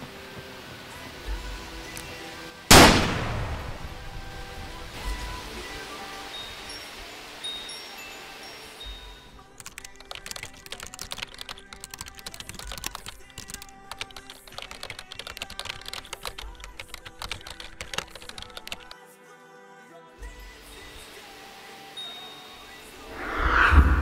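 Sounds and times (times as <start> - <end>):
soft background music: 0.0 - 24.0
rapid keyboard typing: 9.6 - 19.0.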